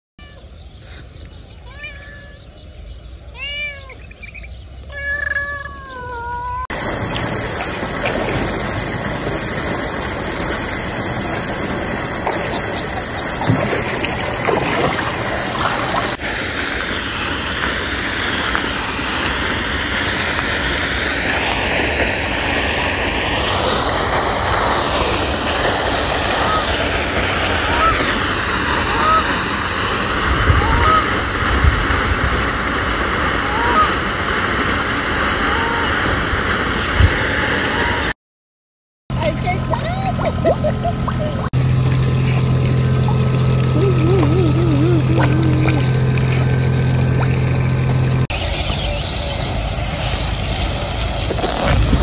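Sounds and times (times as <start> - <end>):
cat meowing: 1.6 - 2.5, 3.3 - 4.0, 4.9 - 6.7
steady rushing noise: 47.7 - 52.0.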